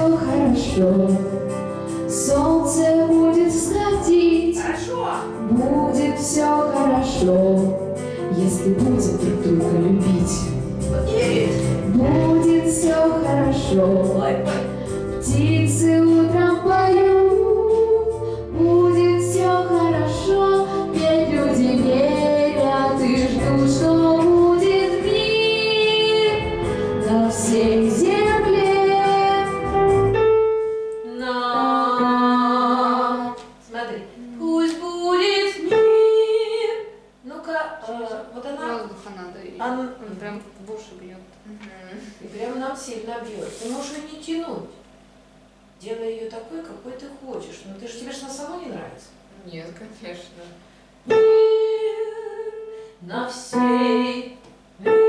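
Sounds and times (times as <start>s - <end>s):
girl singing into a microphone: 0.0s - 1.4s, 2.1s - 4.6s, 5.5s - 10.5s, 11.9s - 14.5s, 15.2s - 29.9s, 31.0s - 33.6s, 34.2s - 37.0s, 51.1s - 55.0s
musical accompaniment: 0.0s - 33.4s.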